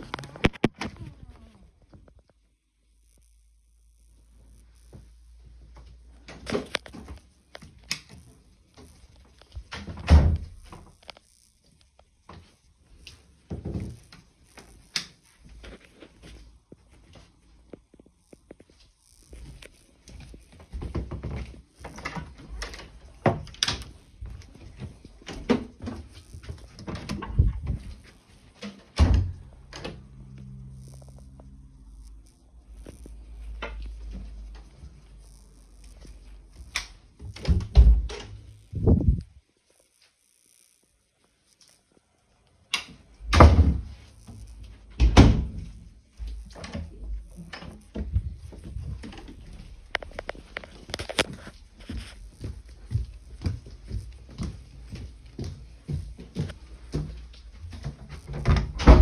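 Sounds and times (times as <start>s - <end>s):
phone handling noise: 0.0s - 1.0s
heavy door thumps: 43.3s - 43.9s, 58.4s - 59.0s
footsteps on carpet: 50.3s - 57.8s.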